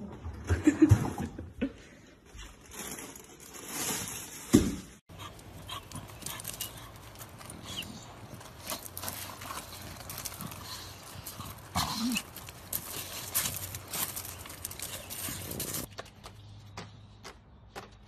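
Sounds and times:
dog sounds: 5.1 - 15.9.

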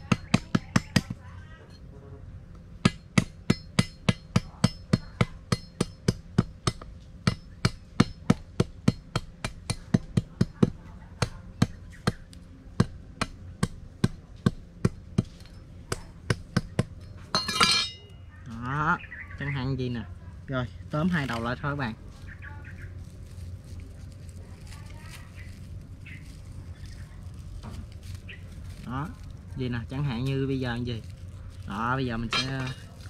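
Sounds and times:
machete chopping bamboo: 0.0 - 1.2, 2.8 - 18.0.

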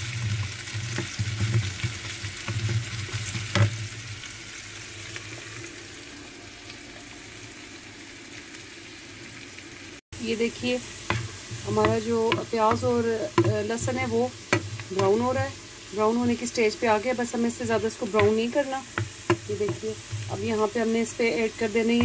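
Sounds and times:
onion sizzling in frying pan: 0.0 - 22.0
wooden spoon scraping a pan: 0.1 - 4.0, 10.6 - 16.8, 17.6 - 22.0.

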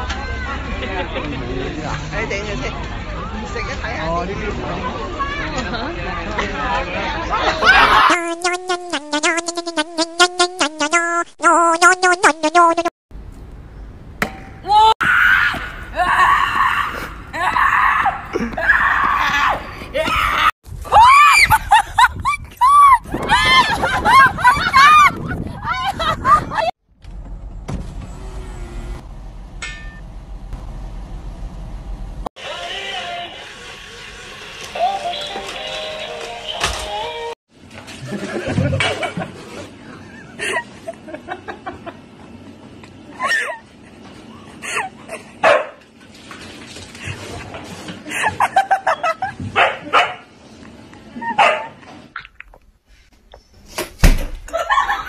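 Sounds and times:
dog barking: 45.4 - 45.8, 49.6 - 50.2, 51.4 - 51.8.

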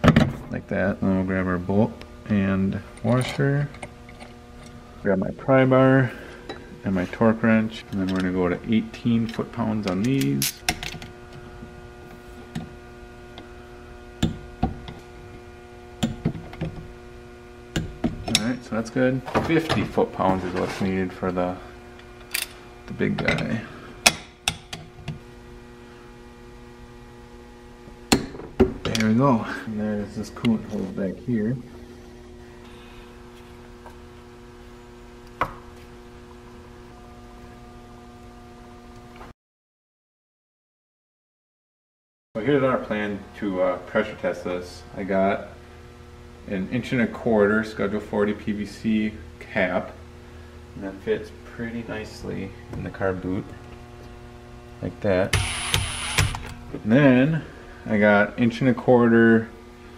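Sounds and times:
steady electrical hum: 0.0 - 39.3, 42.4 - 59.9
torque wrench clicks: 55.4 - 56.6.

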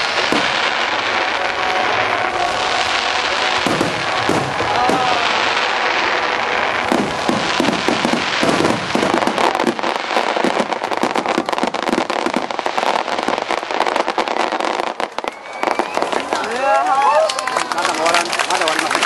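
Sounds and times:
firework shells bursting: 0.0 - 14.2.

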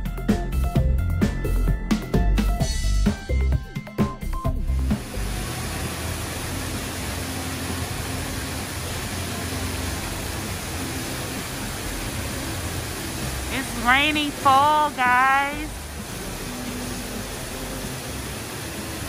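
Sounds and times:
fountain water pouring into basin: 4.7 - 19.0.

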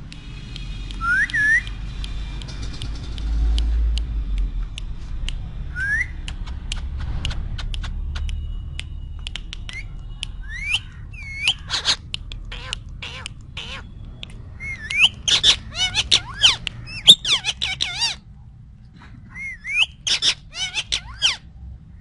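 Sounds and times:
sharp clicks: 0.0 - 5.4, 6.2 - 15.3
low rumble: 1.9 - 15.8
parakeet whistling: 9.7 - 18.2, 19.4 - 21.4.

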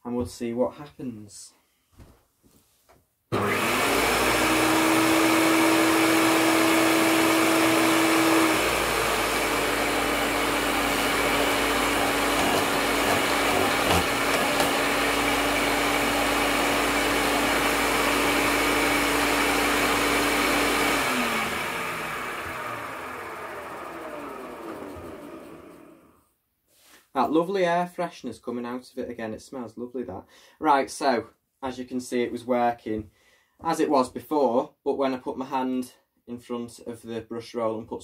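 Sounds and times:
vacuum cleaner motor whine: 3.3 - 26.2.

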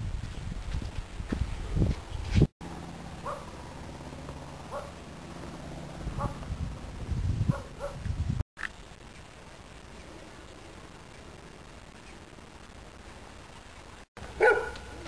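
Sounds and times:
dog barking: 3.2 - 3.6, 4.7 - 5.0, 6.2 - 6.4, 7.5 - 8.0, 14.3 - 15.0.

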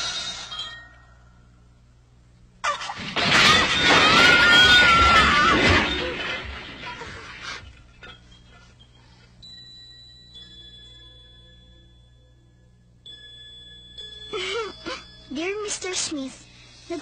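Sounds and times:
breaking and shattering crash: 2.7 - 8.2.

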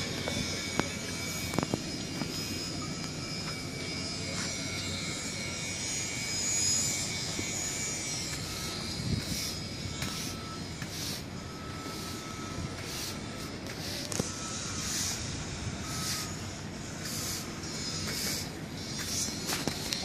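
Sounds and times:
rushing air hiss with whistling: 8.5 - 19.6.

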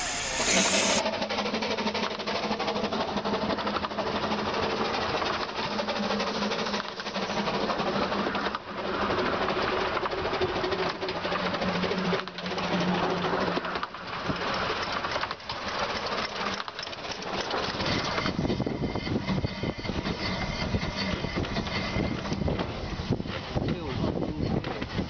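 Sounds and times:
steady low hum: 0.0 - 1.0
steam locomotive mechanical chatter: 0.0 - 1.0, 17.6 - 25.0.

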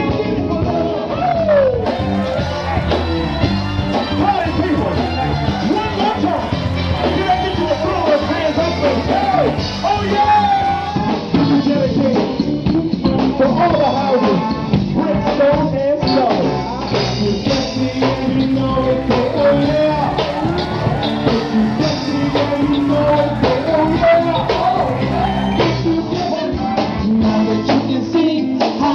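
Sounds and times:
band music: 0.0 - 28.9
lead singer singing: 17.2 - 28.9.

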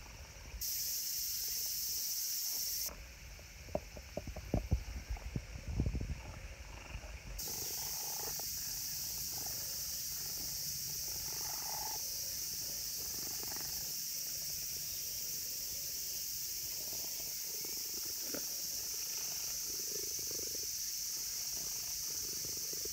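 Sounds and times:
insect chorus drone: 0.0 - 22.9.

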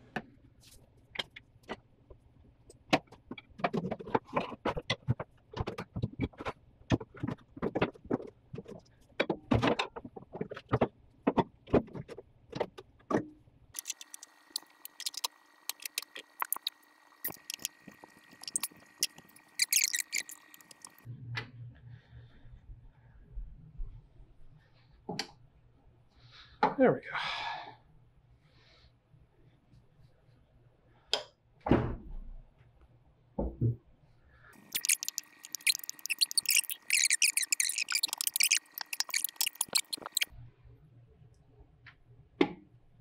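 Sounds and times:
steady hum with high tone: 13.8 - 21.3.

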